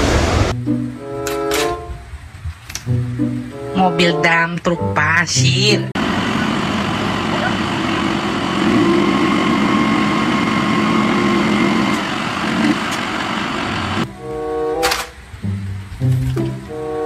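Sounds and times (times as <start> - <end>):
truck engine running: 5.9 - 17.0
faint hydraulic whine: 6.0 - 14.7.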